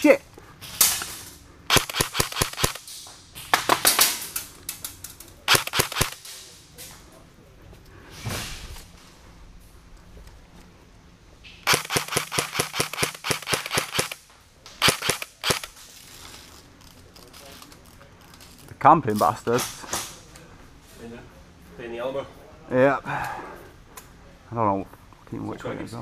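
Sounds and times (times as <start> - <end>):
airsoft gun firing full-auto bursts: 1.7 - 2.8, 5.5 - 6.2, 11.6 - 14.2, 14.8 - 15.7.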